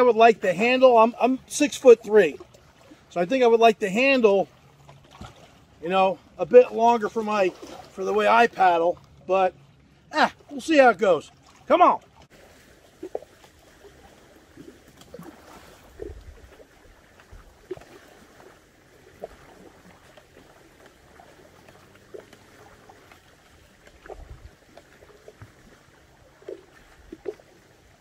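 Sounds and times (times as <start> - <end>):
lake waves lapping at shore: 0.0 - 28.0
wind rumbling on microphone: 12.4 - 28.0.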